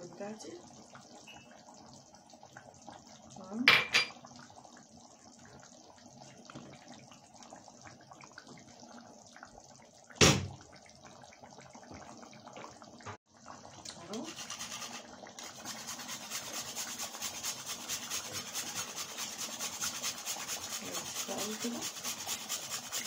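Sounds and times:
kitchenware clinks: 0:03.7 - 0:04.2.

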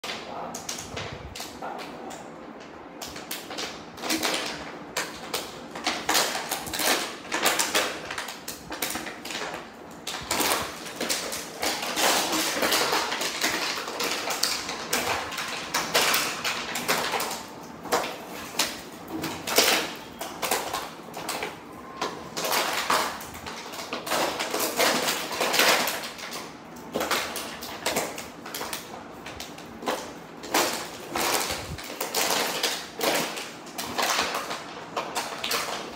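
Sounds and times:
dog chewing plastic bottle: 0:03.0 - 0:35.9.

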